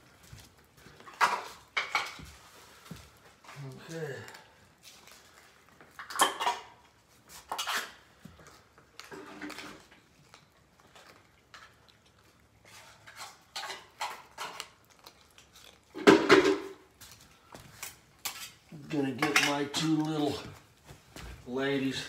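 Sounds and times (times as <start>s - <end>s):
spoon and dishes clattering: 1.1s - 2.3s, 6.0s - 6.8s, 12.7s - 14.8s, 15.9s - 16.8s, 18.2s - 20.0s.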